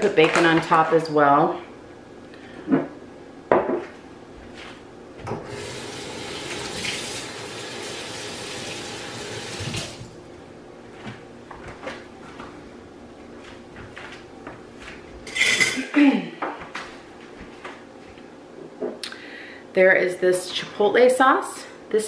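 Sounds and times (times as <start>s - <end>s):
faucet water running into sink: 5.4s - 10.1s.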